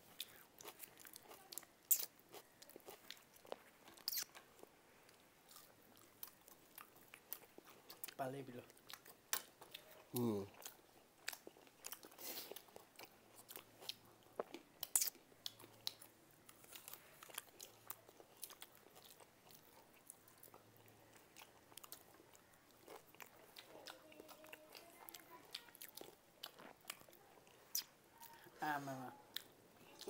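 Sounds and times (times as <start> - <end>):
people chewing and crunching food: 0.0 - 30.0
mouth clicks: 4.0 - 4.4.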